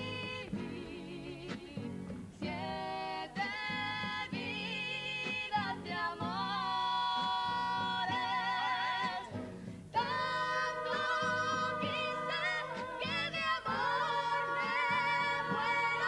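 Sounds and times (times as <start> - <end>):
chorus singing together: 9.9 - 16.0.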